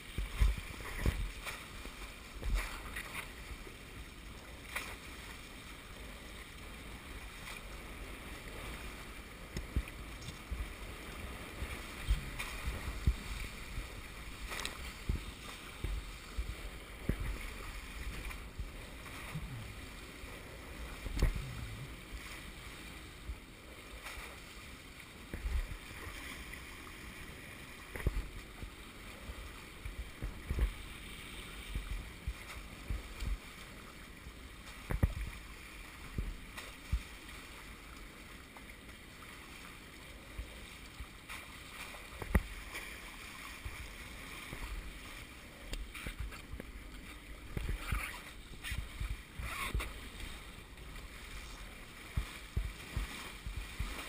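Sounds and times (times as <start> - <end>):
water splashing along boat hulls: 0.0 - 54.0
boat knocks and thumps: 0.2 - 1.5, 11.6 - 19.8, 52.1 - 54.0.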